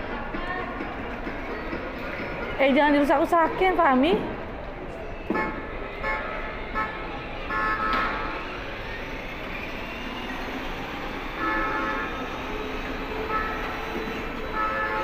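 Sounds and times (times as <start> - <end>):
hubbub of indoor hall: 0.0 - 15.0
toy car horn beeps: 5.3 - 8.4, 11.4 - 12.5, 13.3 - 15.0.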